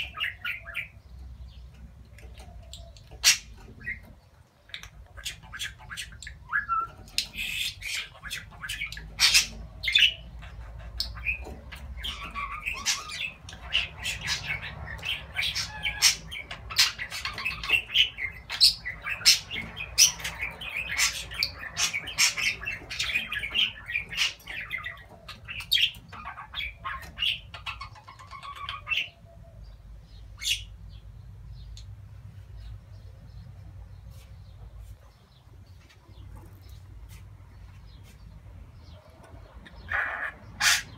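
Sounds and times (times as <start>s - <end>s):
budgerigar warbling and chattering: 2.4s - 29.4s, 39.2s - 40.9s.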